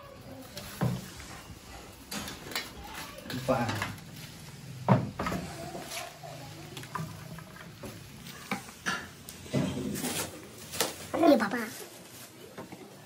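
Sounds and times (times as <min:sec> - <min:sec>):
bean pods rustling and crackling: 0:00.2 - 0:13.0.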